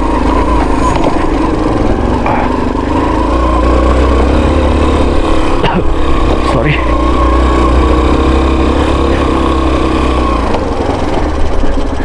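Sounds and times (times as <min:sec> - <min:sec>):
dirt bike engine running: 0:00.0 - 0:12.0.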